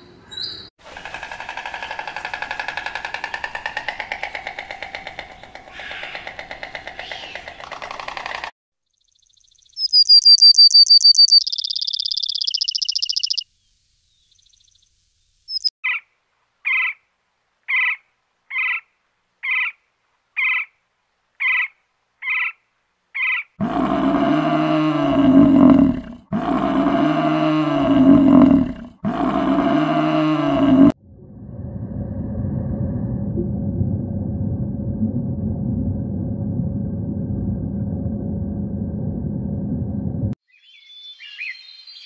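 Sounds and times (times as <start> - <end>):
bird chirping trill: 8.9 - 16.0
low animal bellows: 23.6 - 33.0.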